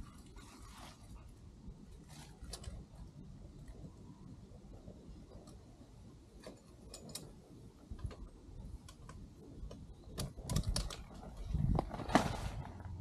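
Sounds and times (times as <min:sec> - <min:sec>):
rustling: 0:00.0 - 0:03.1, 0:10.5 - 0:13.0.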